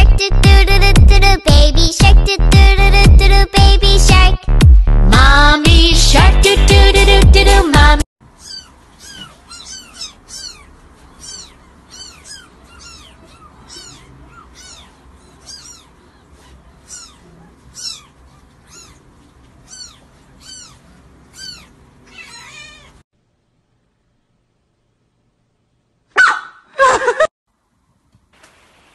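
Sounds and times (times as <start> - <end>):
kitten mewing: 8.4 - 23.0.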